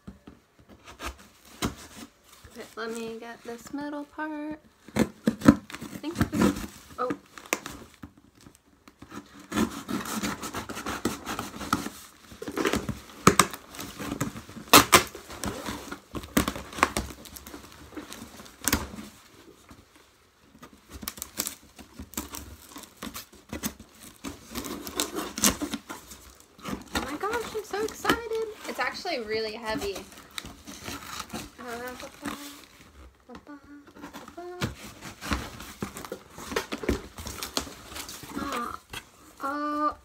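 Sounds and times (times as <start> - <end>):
cardboard crinkling and rustling: 0.0 - 40.0
packing tape tearing: 4.8 - 19.6, 20.6 - 39.6
cardboard knocks and crackles: 4.8 - 19.9, 33.9 - 39.1.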